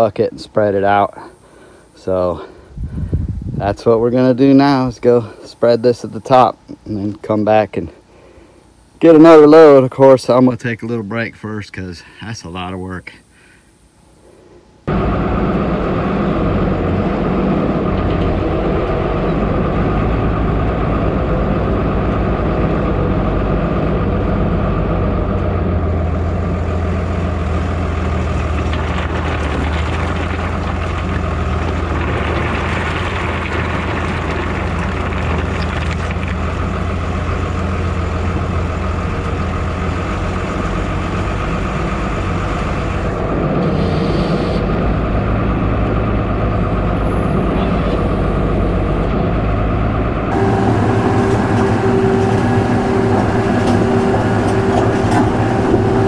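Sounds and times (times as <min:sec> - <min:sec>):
diesel tractor engine running: 0:14.9 - 0:56.0
rocks rattling out of bucket: 0:28.3 - 0:36.6.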